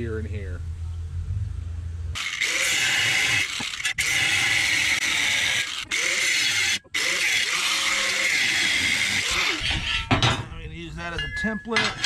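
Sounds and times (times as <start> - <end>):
low hum: 0.0 - 2.4
angle grinder cutting steel: 2.2 - 10.1.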